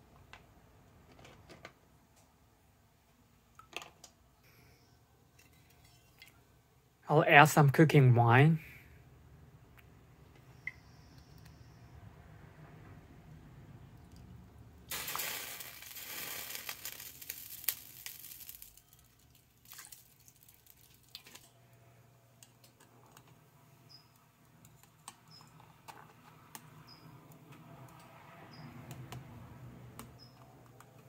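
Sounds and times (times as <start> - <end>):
pot bubbling at the boil: 13.8 - 21.4
liquid pouring into pot: 14.9 - 21.4.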